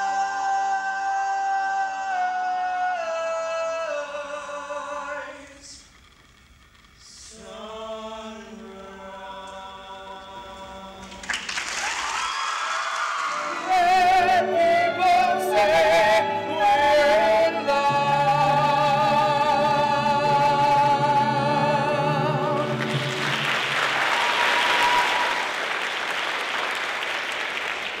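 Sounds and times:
man and woman singing duet: 0.0 - 5.8, 7.0 - 11.2, 13.3 - 23.2
audience applause: 11.1 - 13.8, 22.6 - 28.0.

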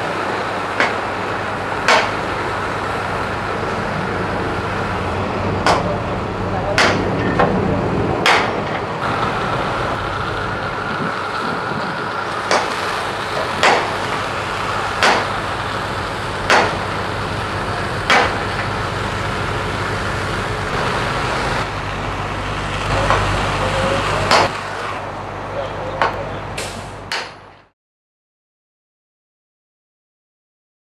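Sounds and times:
steady rushing outdoor noise: 0.0 - 27.7
sharp metallic knocks: 6.8 - 7.5, 8.2 - 8.8, 16.5 - 16.8.

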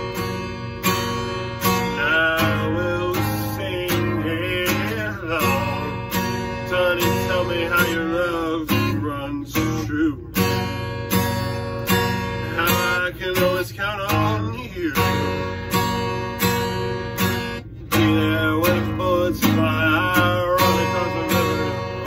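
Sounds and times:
acoustic guitar strumming: 0.0 - 22.0
man singing: 1.6 - 10.4, 12.3 - 15.8, 17.9 - 22.0.

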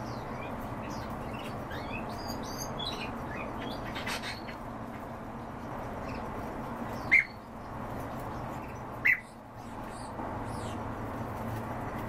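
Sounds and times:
loud bird calls: 0.0 - 5.1, 6.0 - 10.8
steady background noise: 0.0 - 12.0
high bird chirps: 6.9 - 7.6, 8.6 - 10.8.

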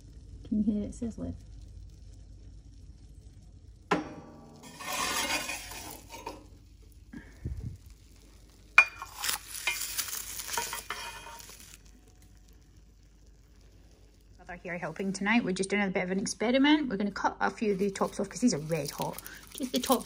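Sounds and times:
sizzling: 0.0 - 20.0
metal scoop clinking on grill: 4.1 - 6.5, 8.8 - 11.9
scoop scraping grill: 4.4 - 6.6, 8.8 - 11.9.

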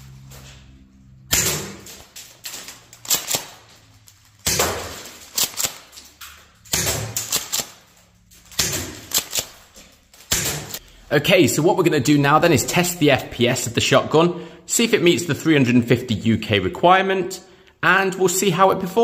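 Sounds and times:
airsoft shotgun shots: 6.7 - 7.8.

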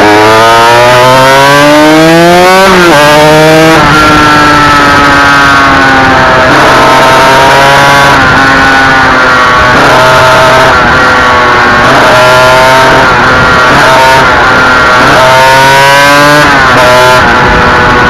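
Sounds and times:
racing motorcycle engine revving: 0.0 - 18.0
wind rush: 16.5 - 18.0.

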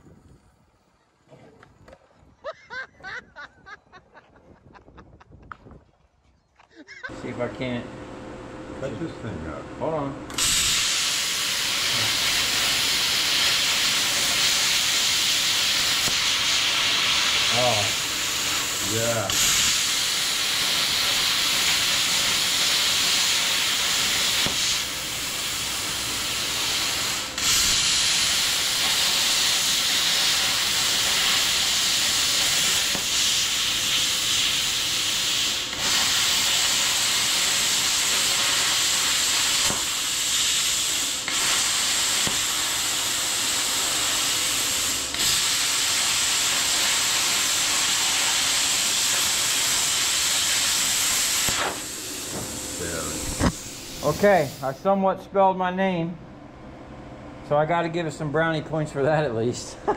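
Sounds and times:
plasma cutter hissing: 10.3 - 54.8.

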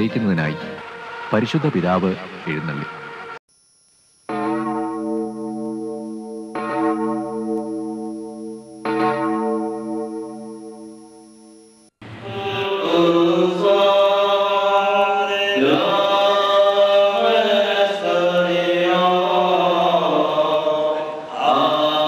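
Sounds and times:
steady low tone: 4.5 - 12.8
voices singing a slow chant: 12.0 - 22.0.

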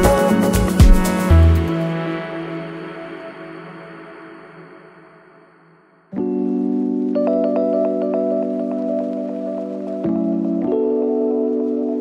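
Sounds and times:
held music chord: 0.0 - 5.1.

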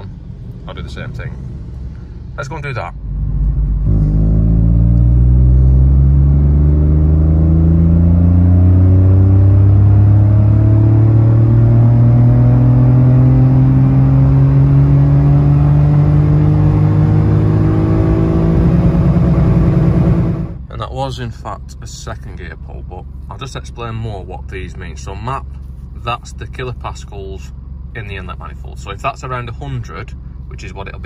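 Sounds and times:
car engine accelerating: 0.0 - 20.7.

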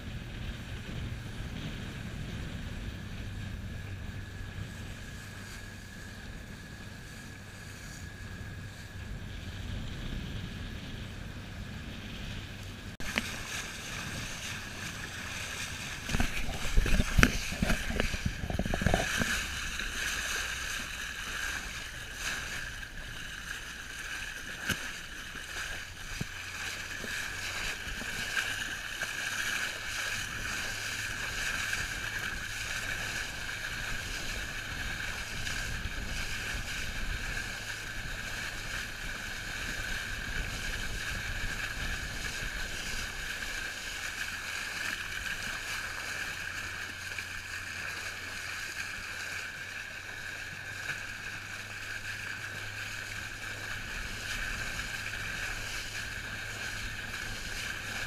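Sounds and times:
low buffeting: 0.0 - 28.3
boat engine hum: 0.0 - 58.0
wind and water noise: 0.0 - 58.0.

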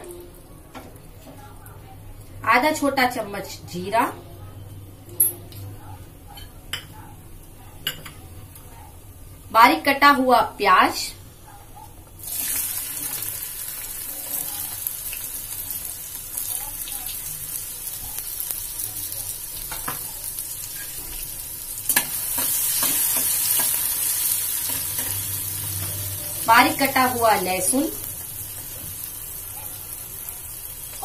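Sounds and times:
onion sizzling in hot oil: 12.2 - 31.0.

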